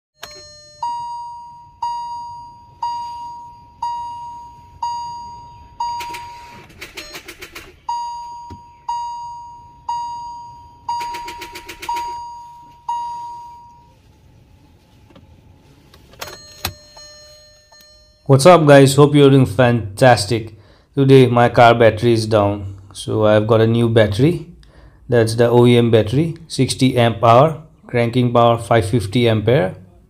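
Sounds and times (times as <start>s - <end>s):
dashboard warning chime: 0.2s - 14.1s, 16.1s - 19.0s
starter solenoid chattering: 5.8s - 8.0s, 10.9s - 12.2s.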